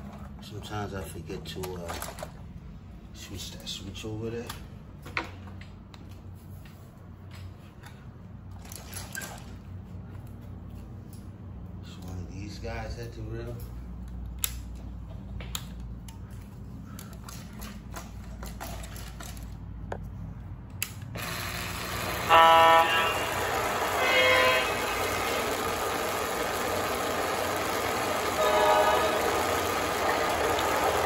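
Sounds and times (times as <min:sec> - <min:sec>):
diesel engine sound: 0:19.3 - 0:31.0
locomotive horn blasts: 0:21.8 - 0:31.0.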